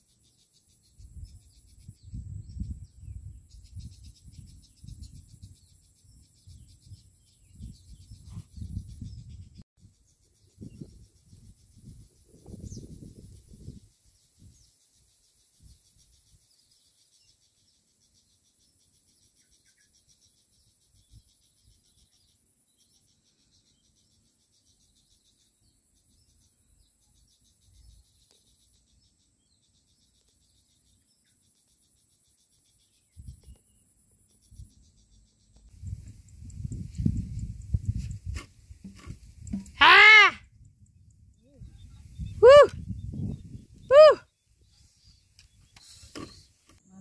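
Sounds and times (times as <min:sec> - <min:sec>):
low rumble on microphone: 0:01.0 - 0:09.6, 0:35.8 - 0:39.8, 0:40.4 - 0:44.1.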